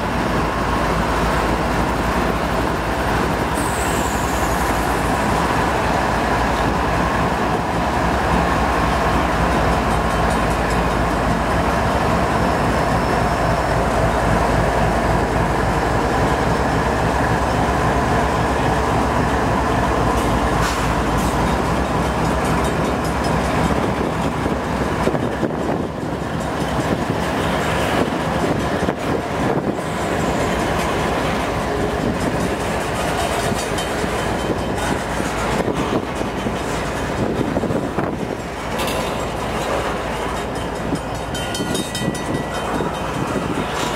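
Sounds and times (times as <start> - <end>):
diesel locomotive engines under load: 0.0 - 43.9
wind noise on microphone: 23.7 - 30.2, 34.4 - 38.8, 40.8 - 43.9.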